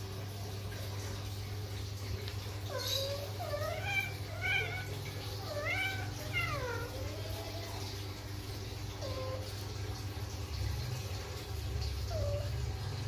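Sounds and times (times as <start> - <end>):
cat yowling: 2.6 - 8.0, 8.9 - 9.5, 12.1 - 12.7.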